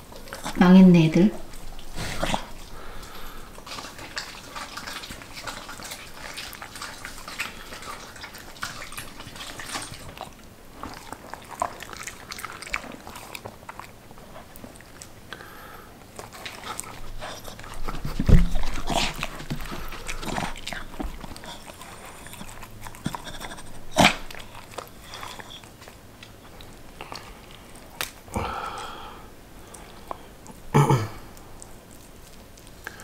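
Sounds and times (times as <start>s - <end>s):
dogs chewing and licking: 0.0s - 33.0s
teeth and tongue clicks: 29.6s - 33.0s.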